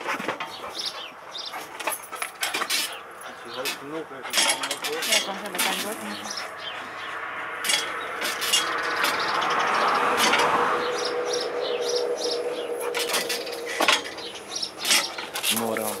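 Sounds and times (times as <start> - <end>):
knocks and rattles of pole rig: 1.7 - 3.0, 3.6 - 6.0, 7.6 - 10.6, 13.0 - 16.0
vehicle passing: 2.1 - 16.0
steady hum: 10.1 - 15.5.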